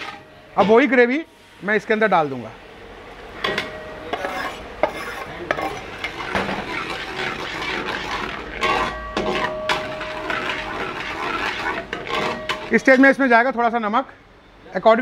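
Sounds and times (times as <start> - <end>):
spatula scraping a steel pan: 0.0 - 0.8, 4.1 - 13.0.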